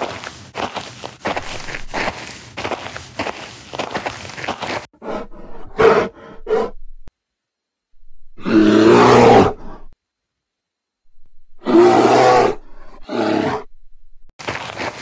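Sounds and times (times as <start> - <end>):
quick running footsteps: 0.0 - 4.9, 14.4 - 15.0
loud long bear roar: 8.4 - 9.9, 11.6 - 13.7.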